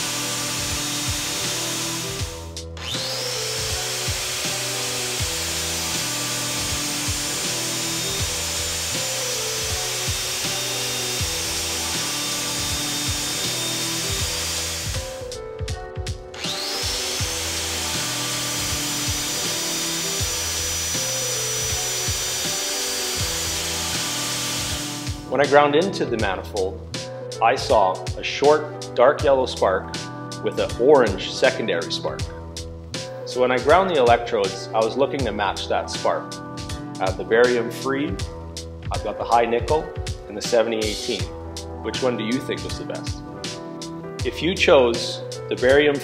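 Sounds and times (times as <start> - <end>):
angle grinder whining: 0.0 - 25.4
background music with bass line: 0.0 - 46.0.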